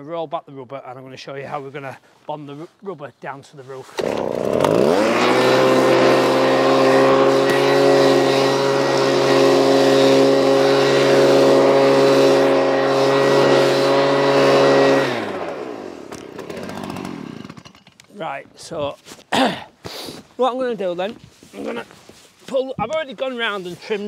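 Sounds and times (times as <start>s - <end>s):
leaf blower running: 3.9s - 17.8s.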